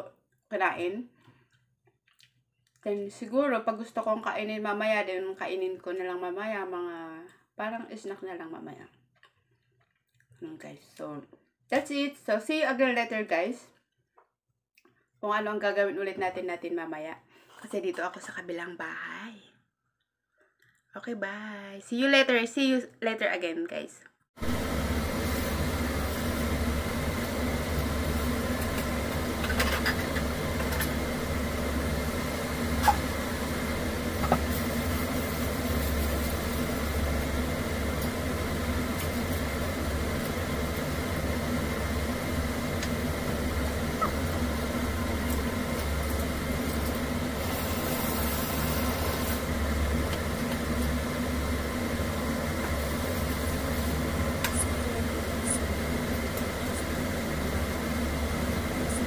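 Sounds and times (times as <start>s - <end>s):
low mechanical hum: 24.4s - 59.0s.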